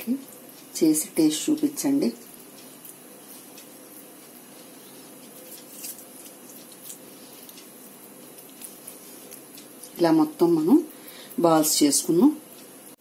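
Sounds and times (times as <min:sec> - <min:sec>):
background hiss: 0:00.0 - 0:13.0
hands squishing damp food: 0:02.6 - 0:10.0.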